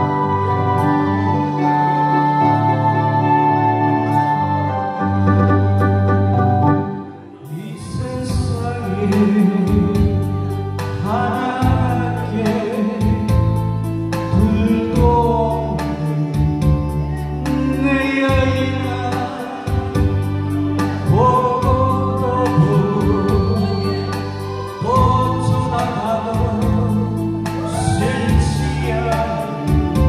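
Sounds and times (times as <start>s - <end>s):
instrumental accompaniment with beat: 0.0s - 30.0s
man singing into a microphone: 7.4s - 30.0s.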